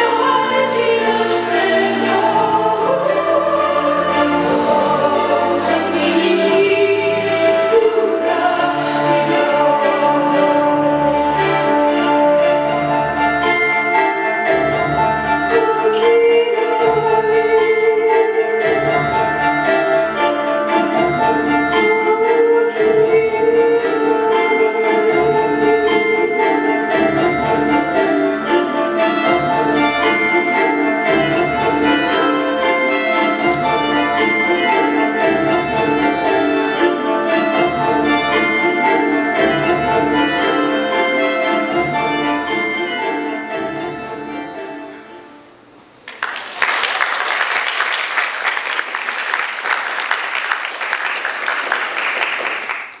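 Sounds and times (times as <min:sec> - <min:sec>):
sustained tones: 0:00.0 - 0:45.9
bell-like mallet percussion music: 0:10.8 - 0:44.8
audience applauding: 0:46.0 - 0:53.0.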